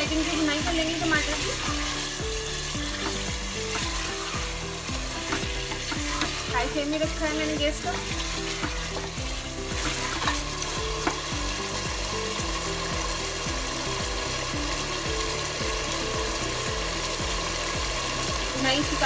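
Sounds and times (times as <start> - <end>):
food sizzling in a pot: 0.0 - 19.0
soft background music: 0.0 - 19.0
spatula scraping: 1.0 - 11.4.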